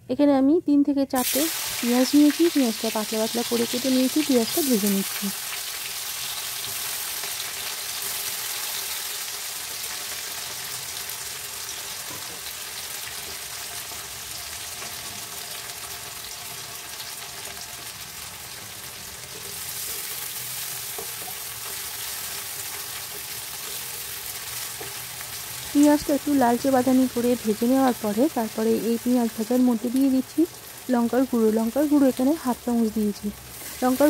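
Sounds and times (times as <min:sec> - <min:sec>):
onions sizzling in oil: 0:01.1 - 0:34.0.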